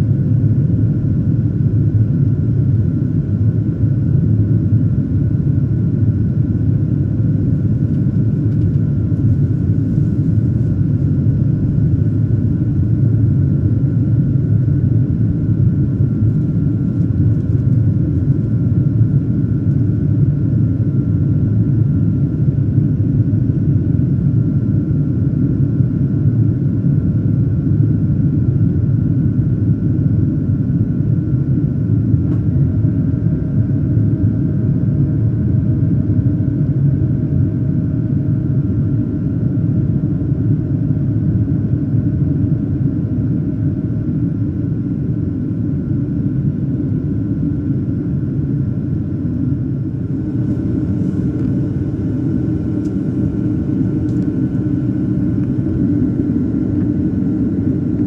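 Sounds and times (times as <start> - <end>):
jet engine and airflow rumble: 0.0 - 58.0
faint high whine: 46.1 - 58.0.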